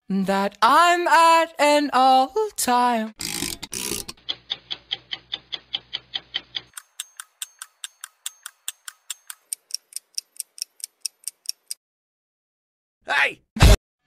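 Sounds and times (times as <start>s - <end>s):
clock-like ticking in dance track: 4.2s - 11.8s.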